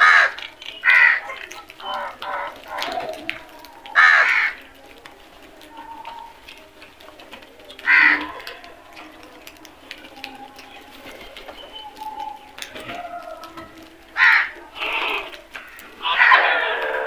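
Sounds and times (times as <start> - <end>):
crow cawing: 0.0 - 1.2, 4.0 - 4.6, 7.8 - 8.3, 14.2 - 17.0
faint crow calls: 0.0 - 4.7, 7.8 - 8.6, 11.9 - 17.0.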